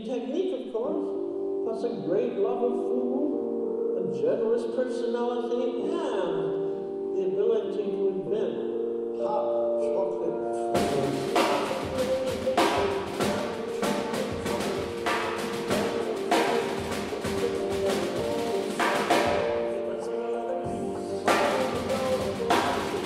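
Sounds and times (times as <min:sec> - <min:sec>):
backing music with held chords: 0:00.2 - 0:23.0
snare drum played with sticks: 0:10.8 - 0:19.6, 0:21.3 - 0:23.0.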